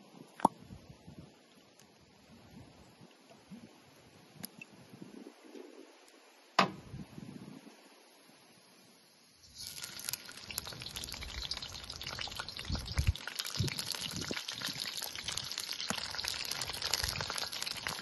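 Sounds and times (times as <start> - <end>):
peppers sizzling in hot oil: 9.4 - 18.0.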